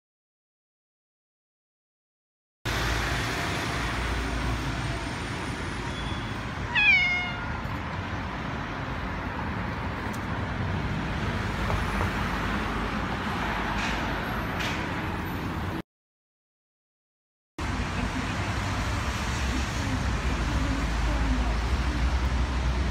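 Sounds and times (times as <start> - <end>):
outdoor background noise: 2.7 - 15.8, 17.6 - 22.9
cat meowing: 6.7 - 7.7.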